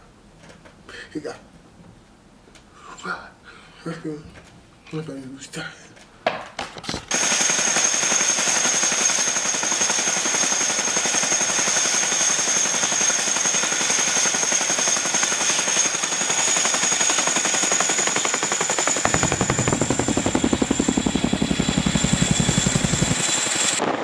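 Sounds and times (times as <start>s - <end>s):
helicopter blades chopping: 7.1s - 23.8s
high turbine whine: 7.1s - 24.0s.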